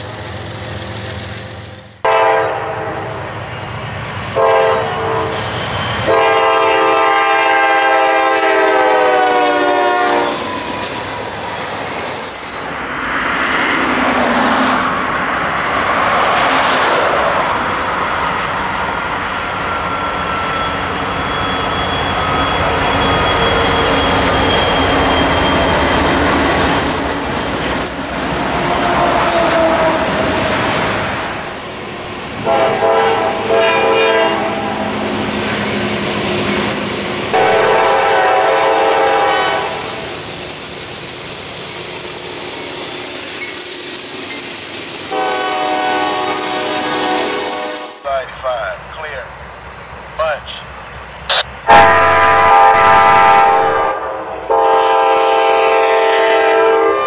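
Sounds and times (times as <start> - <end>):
train wheels rumbling: 0.0 - 57.0
locomotive air horn blasts: 2.0 - 3.1, 4.3 - 5.4, 6.0 - 10.5, 32.4 - 34.9, 37.3 - 39.9, 45.1 - 48.1, 51.7 - 57.0
wheels squealing: 3.1 - 6.1, 10.4 - 12.8, 18.2 - 29.4, 39.7 - 45.1.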